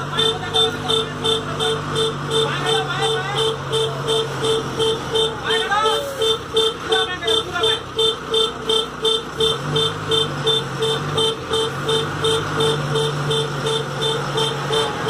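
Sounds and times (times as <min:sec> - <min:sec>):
diesel truck engine: 0:00.0 - 0:15.0
truck reversing alarm beeping: 0:00.0 - 0:15.0.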